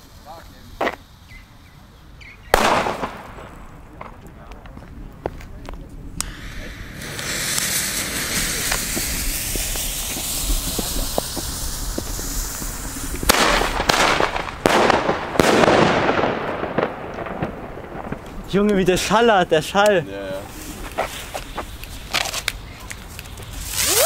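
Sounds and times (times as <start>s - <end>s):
firework hissing: 0.0s - 3.9s, 5.9s - 24.0s
small firework cracks: 0.2s - 1.0s, 2.5s - 24.0s
loud firework bangs: 2.5s - 4.4s, 6.2s - 19.7s.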